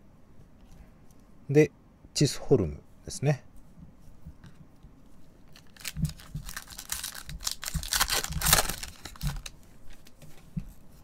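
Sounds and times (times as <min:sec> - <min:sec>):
foil wrapper tearing and crinkling: 0:05.5 - 0:09.6.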